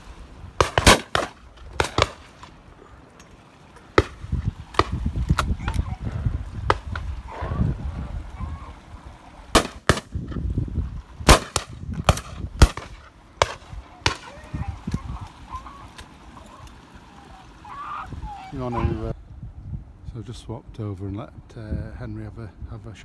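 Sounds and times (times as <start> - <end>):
shotguns firing: 0.6 - 2.6, 9.5 - 10.2, 11.2 - 14.4.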